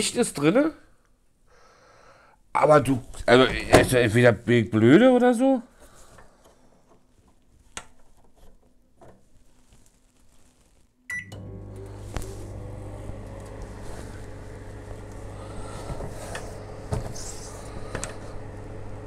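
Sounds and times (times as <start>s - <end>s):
microwave short beep: 11.1s - 12.1s
microwave running with hum and fan: 11.1s - 19.0s.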